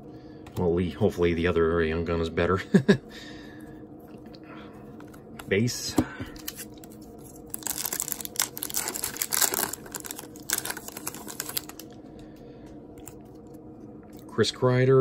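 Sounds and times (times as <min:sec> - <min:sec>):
foil wrapper tearing and crinkling: 0:06.4 - 0:11.9.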